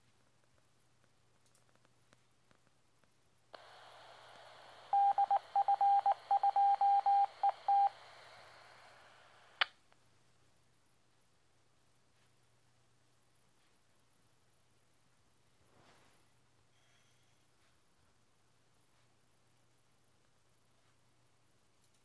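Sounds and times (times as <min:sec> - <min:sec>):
radio squelch hiss: 0:02.5 - 0:10.0
morse code beep tone: 0:04.9 - 0:08.0.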